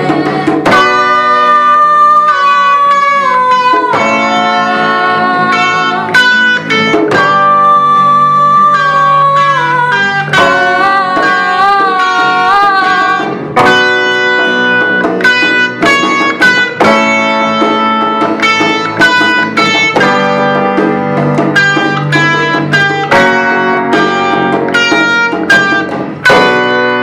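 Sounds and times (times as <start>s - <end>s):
person singing wavering notes: 0.0s - 15.0s
live band with guitars and keyboard: 0.0s - 27.0s
plucked guitar notes: 0.0s - 27.0s.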